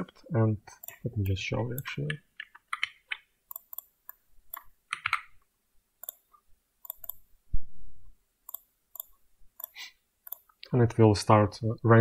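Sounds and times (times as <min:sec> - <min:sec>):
computer mouse clicks: 0:00.8 - 0:05.4, 0:06.0 - 0:07.2, 0:08.5 - 0:10.6.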